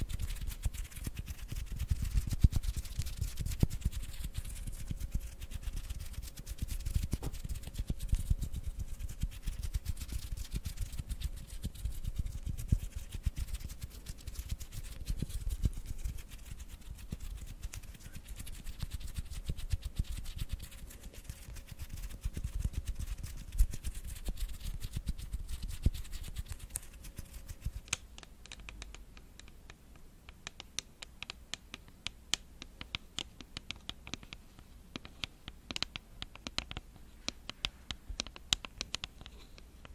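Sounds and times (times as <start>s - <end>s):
hands rubbing together: 0.0s - 28.0s.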